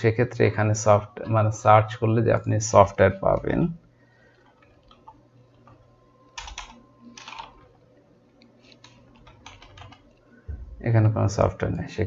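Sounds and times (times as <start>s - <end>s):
typing on computer keyboard: 4.3s - 7.7s, 8.8s - 10.2s.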